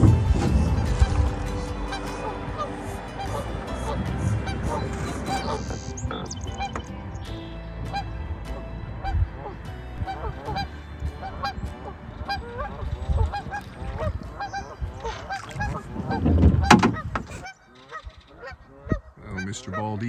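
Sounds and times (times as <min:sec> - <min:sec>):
river rushing: 0:00.0 - 0:13.0
geese honking: 0:00.0 - 0:20.0.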